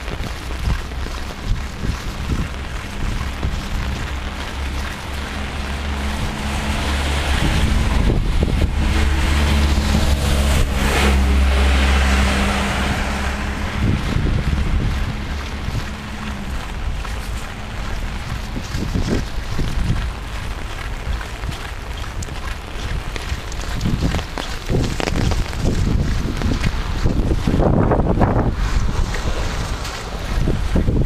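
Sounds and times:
rain hissing: 0.0s - 31.0s
storm wind buffeting microphone: 0.0s - 31.0s.

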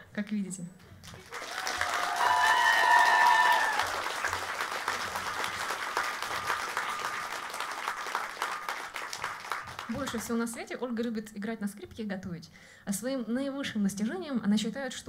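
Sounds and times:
audience applauding: 1.0s - 10.6s.

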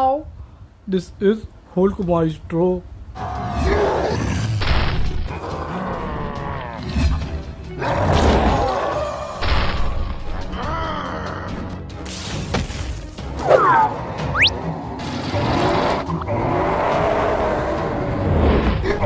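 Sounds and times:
character grunting and roaring: 10.3s - 11.8s
cartoon music: 13.6s - 14.6s.

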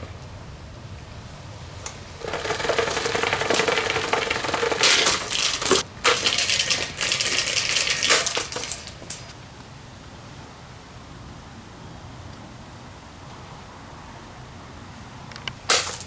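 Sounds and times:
table fan clattering: 1.9s - 9.4s, 15.6s - 16.0s.

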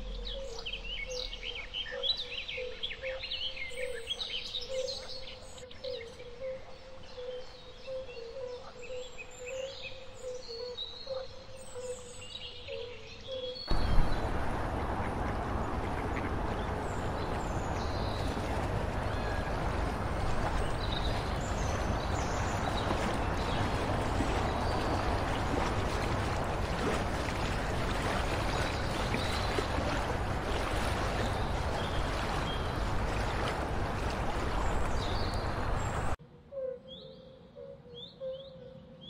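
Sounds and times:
water lapping and splashing: 13.7s - 36.2s
wind rumbling on microphone: 13.7s - 36.2s.

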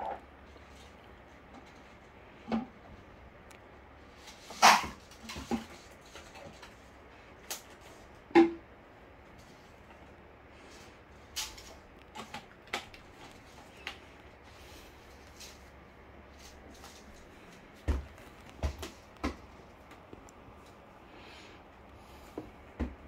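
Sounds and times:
low room hum: 0.0s - 23.0s.

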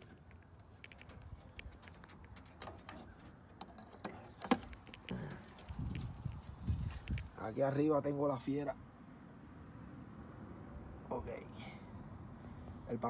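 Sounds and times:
light clicks and taps: 0.0s - 7.4s.

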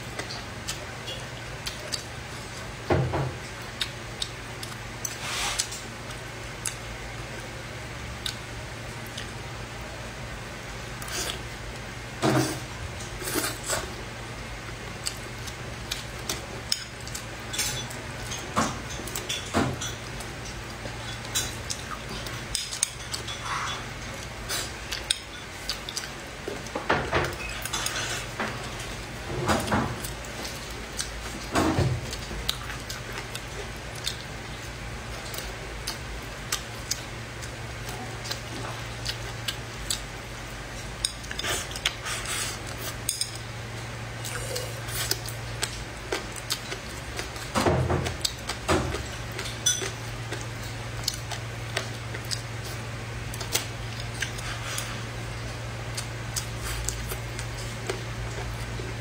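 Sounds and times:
steady low hum: 0.0s - 59.0s
eating noise: 44.2s - 59.0s.

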